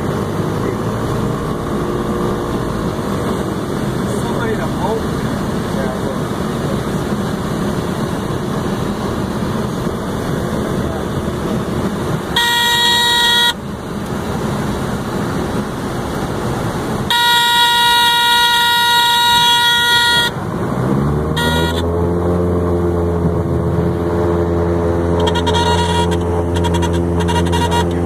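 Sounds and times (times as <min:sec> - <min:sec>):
aircraft engine: 0:00.0 - 0:28.0
water noise: 0:00.0 - 0:28.0
warning horn steady tone: 0:12.2 - 0:13.7, 0:17.1 - 0:20.5, 0:21.3 - 0:22.2, 0:24.9 - 0:28.0.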